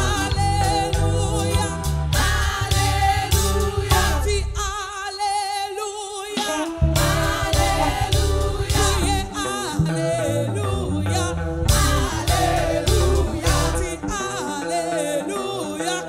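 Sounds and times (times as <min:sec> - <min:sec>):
band with bass and drums: 0:00.0 - 0:04.4, 0:06.4 - 0:09.3, 0:11.6 - 0:13.9
woman singing: 0:00.0 - 0:16.0.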